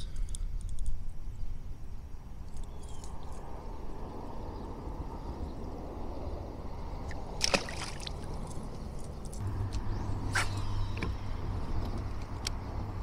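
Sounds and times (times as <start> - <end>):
steady low motor hum: 3.4 - 13.0
fish splashing into water: 7.4 - 8.4.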